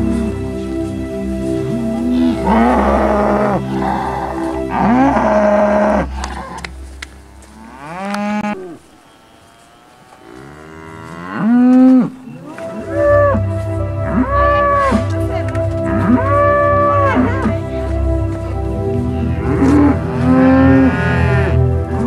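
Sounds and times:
cattle mooing: 1.7 - 8.8, 9.5 - 15.2, 15.9 - 17.7, 19.1 - 21.8.

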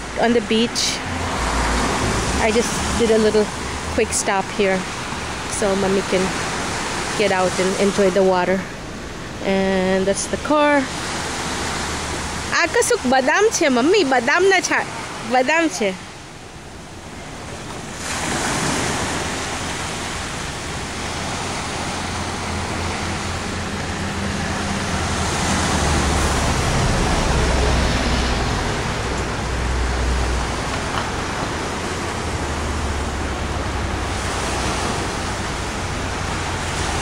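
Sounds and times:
wind rumble on microphone: 0.0 - 37.0
surf breaking on sandy beach: 17.0 - 37.0.

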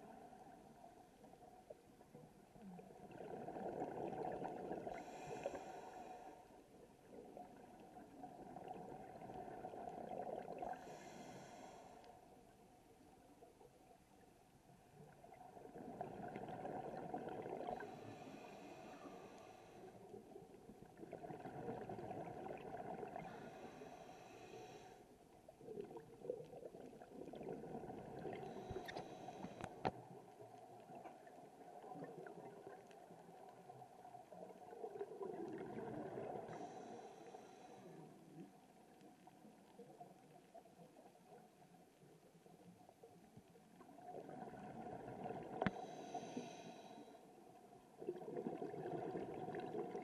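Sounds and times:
exhaled bubbles gurgling: 2.6 - 11.8, 14.9 - 24.7, 25.6 - 41.4, 43.2 - 46.5, 47.8 - 50.0.

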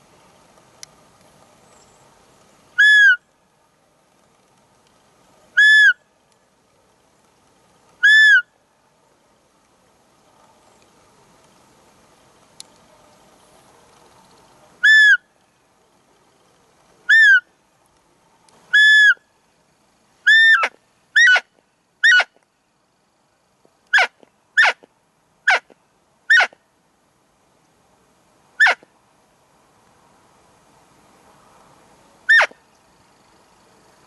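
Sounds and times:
deer call squeaks: 2.8 - 3.2, 5.6 - 6.0, 8.0 - 8.4, 14.8 - 15.2, 17.1 - 17.5, 18.7 - 19.2, 20.3 - 22.4, 23.9 - 24.9, 25.5 - 25.7, 26.3 - 26.6, 28.6 - 28.8, 32.3 - 32.6.

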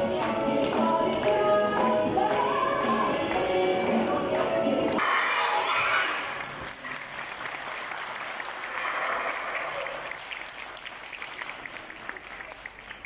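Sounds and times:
audience applauding: 6.2 - 13.0.

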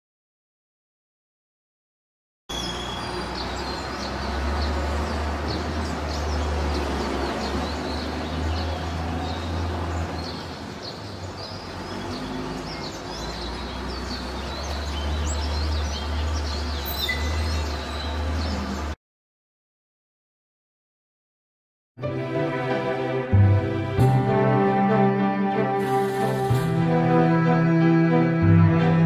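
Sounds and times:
bird chirps: 2.5 - 19.0.

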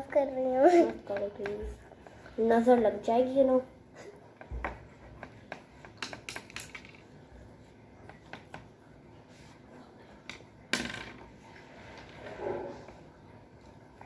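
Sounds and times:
crayons tapping on paper: 0.1 - 3.0, 4.4 - 7.1, 8.0 - 8.7.

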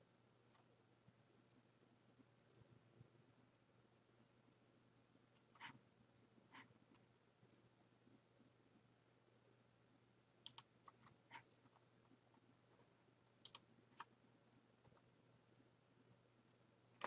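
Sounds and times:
computer mouse clicks: 10.4 - 11.7, 13.4 - 15.6
faint ticking: 10.4 - 11.8, 12.4 - 15.7.

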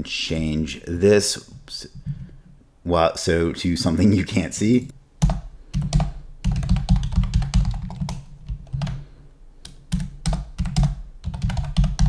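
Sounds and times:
typing on computer keyboard: 5.2 - 9.0, 9.7 - 12.0.

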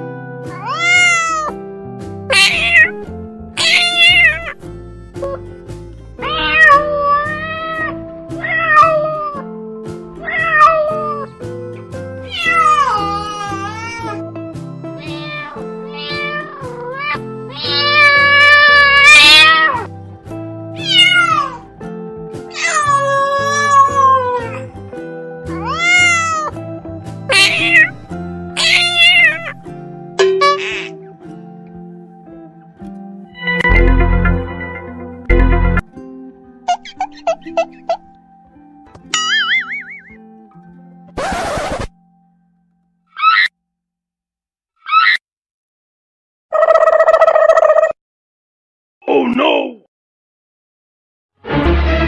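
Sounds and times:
background music: 0.0 - 42.9, 51.4 - 52.0
kittens meowing: 0.6 - 1.6, 2.3 - 3.0, 3.6 - 4.6, 6.2 - 9.4, 10.2 - 11.3, 12.2 - 14.2, 15.0 - 19.9, 20.8 - 21.7, 22.5 - 24.7, 25.5 - 26.6, 27.3 - 28.0, 28.6 - 29.6, 43.2 - 43.5.

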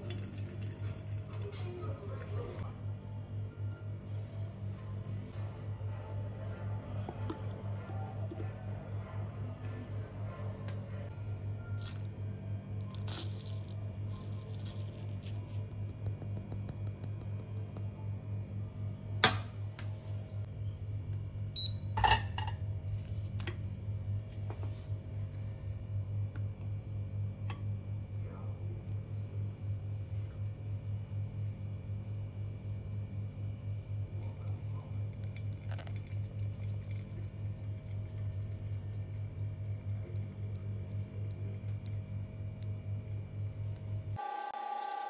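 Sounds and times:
low hum: 0.0 - 44.2.

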